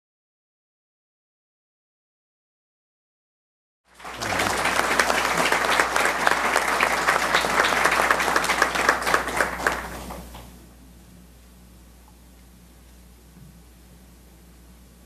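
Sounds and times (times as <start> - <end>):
crowd applauding: 3.9 - 10.4.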